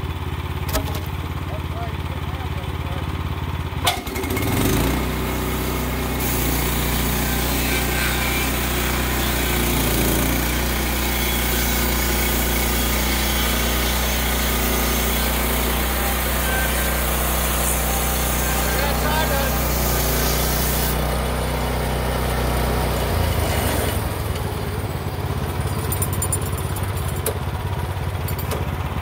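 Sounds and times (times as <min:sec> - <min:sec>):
sawmill engine running: 0:00.0 - 0:29.0.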